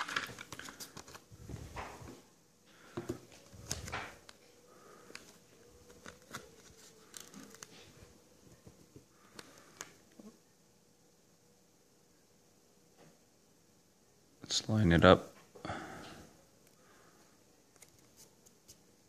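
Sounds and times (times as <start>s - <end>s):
vinyl and paper rustling: 0.0s - 2.2s, 2.8s - 10.0s.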